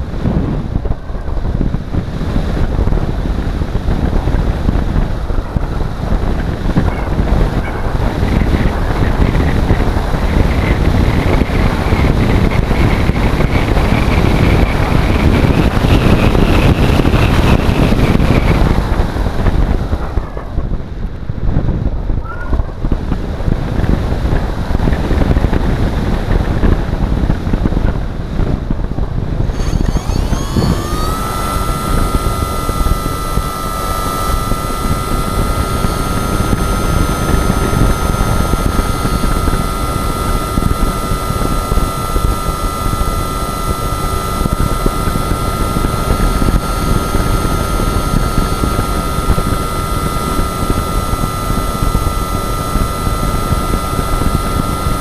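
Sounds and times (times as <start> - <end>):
faint high whine: 0.0 - 26.6, 29.3 - 55.0
wind buffeting microphone: 0.0 - 55.0.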